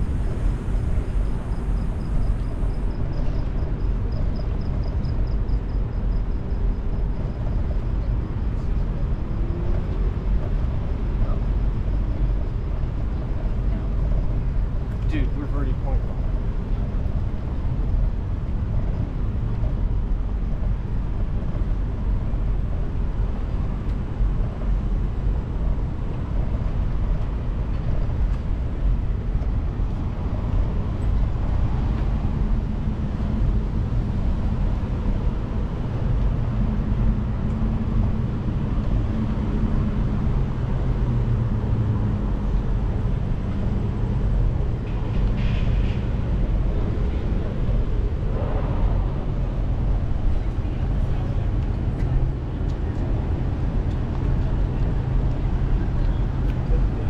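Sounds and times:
traffic: 0.0 - 57.0
wind and road rumble: 0.0 - 57.0
vehicle engine hum: 6.6 - 57.0.

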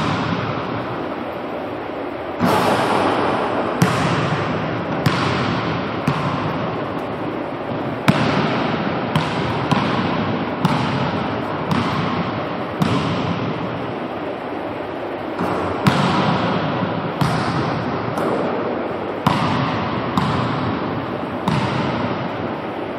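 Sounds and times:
basketball hitting hoop: 0.0 - 0.7, 2.4 - 6.8, 8.0 - 13.5, 15.4 - 18.5, 19.2 - 20.7, 21.4 - 22.2
rushing background noise: 0.0 - 19.3
basketball bouncing on hardwood: 3.8 - 6.5.

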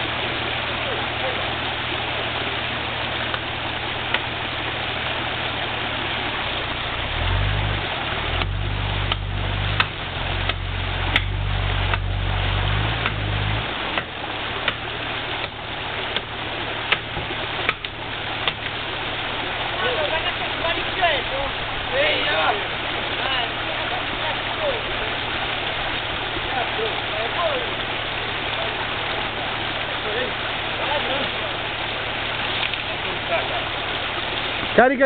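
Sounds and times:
engine idling and revving: 5.4 - 18.8
sharp knocks: 8.4 - 12.1, 16.9 - 18.8.

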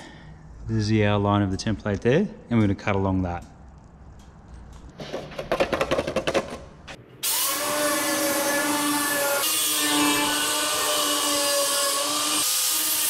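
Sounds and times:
power tool whining: 7.2 - 13.0.

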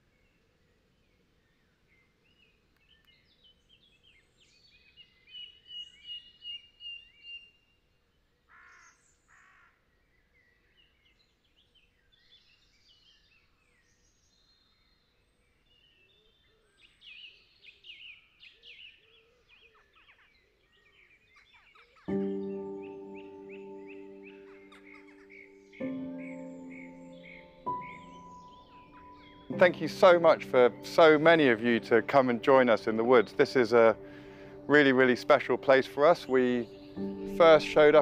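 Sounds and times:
small birds chirping and trilling: 0.0 - 38.0
harsh hoarse bird calls: 18.5 - 38.0.

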